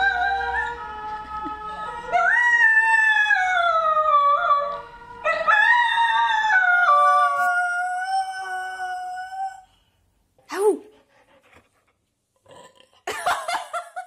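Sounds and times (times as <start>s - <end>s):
dog howling: 0.0s - 9.7s.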